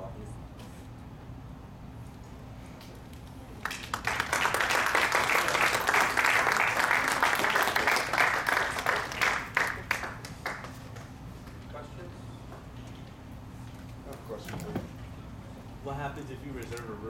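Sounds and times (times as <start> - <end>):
audience applauding: 3.6 - 11.1.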